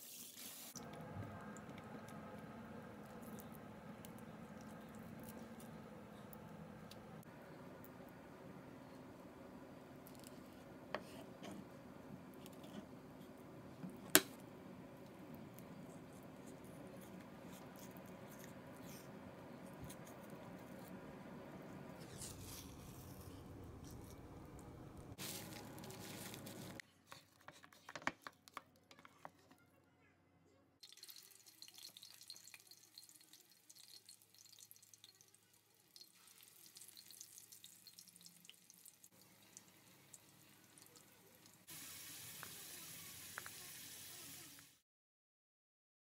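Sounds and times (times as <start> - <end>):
hot oil sizzling and crackling: 0.0 - 0.8, 30.8 - 44.8.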